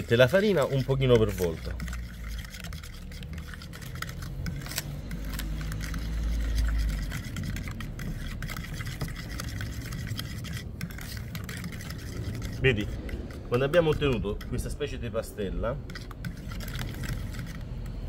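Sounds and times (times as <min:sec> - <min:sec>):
utensil scraping and clicking in bowl: 0:00.0 - 0:18.0.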